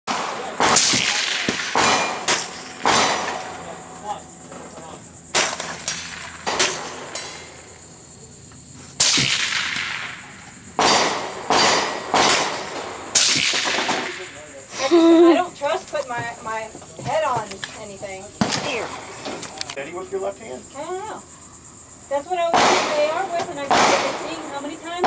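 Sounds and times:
gunshots: 0:00.1 - 0:03.8, 0:05.3 - 0:07.6, 0:09.0 - 0:14.5, 0:18.4 - 0:19.2, 0:22.5 - 0:24.6.

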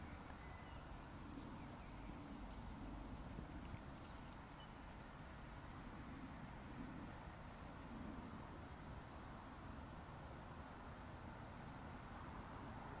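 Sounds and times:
small bird chirping: 0:03.6 - 0:04.8, 0:09.6 - 0:13.0.

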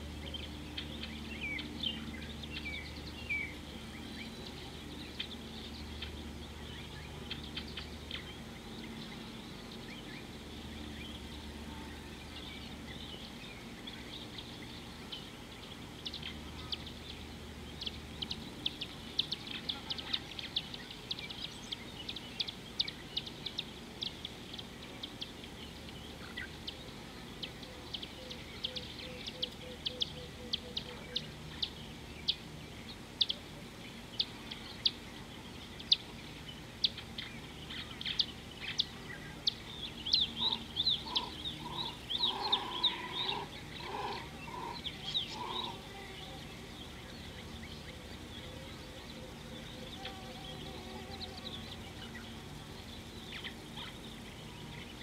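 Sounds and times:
birds chirping sharply: 0:00.0 - 0:55.0
lower bird call repeated: 0:38.1 - 0:46.6.

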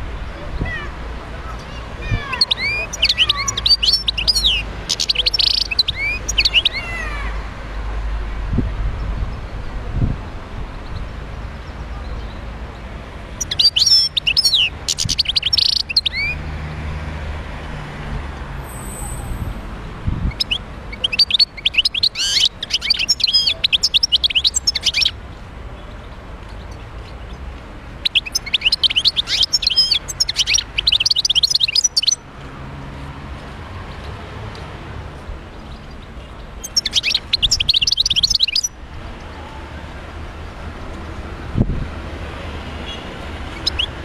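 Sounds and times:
goldfinch twittering: 0:28.0 - 0:32.2, 0:36.6 - 0:38.8, 0:43.6 - 0:44.0.

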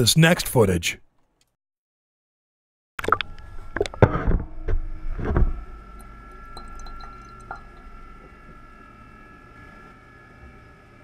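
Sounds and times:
steady hum: 0:03.0 - 0:11.0.

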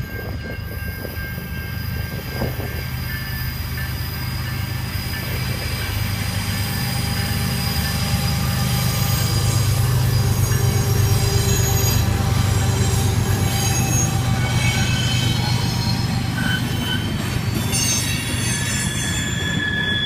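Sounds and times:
diesel locomotives rumbling: 0:00.0 - 0:20.0
train wheels squealing: 0:00.0 - 0:20.0.

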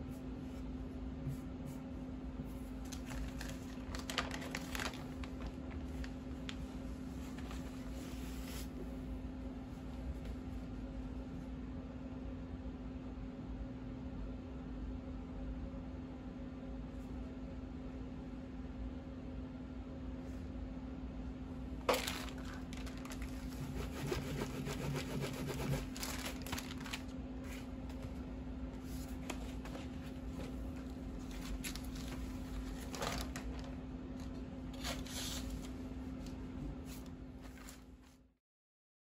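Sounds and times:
steady low hum: 0:00.0 - 0:38.3
paper rustling: 0:02.8 - 0:08.7, 0:21.9 - 0:28.2, 0:28.8 - 0:35.8, 0:36.9 - 0:38.2.

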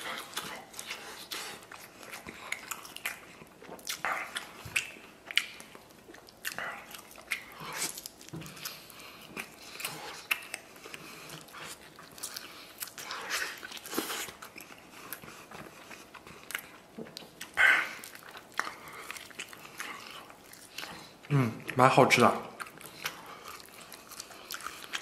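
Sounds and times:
man chewing meat: 0:00.0 - 0:25.0.

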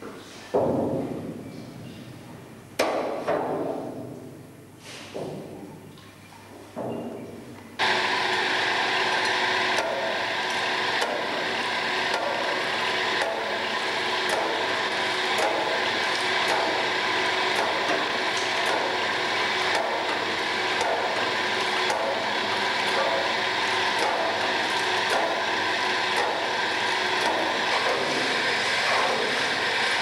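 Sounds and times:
stirring machinery running: 0:07.8 - 0:30.0.

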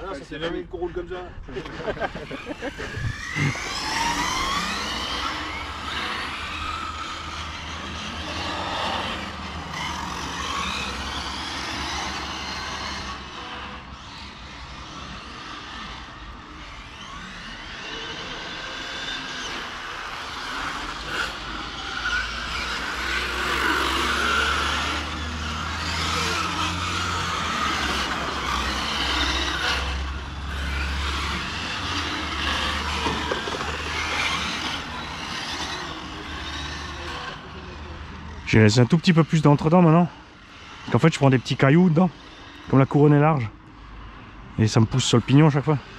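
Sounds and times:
rc car motors whining: 0:00.0 - 0:45.9.

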